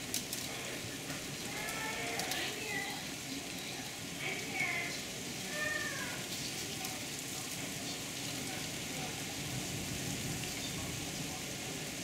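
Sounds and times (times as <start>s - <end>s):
heavy rain through closed window: 0.0s - 12.0s.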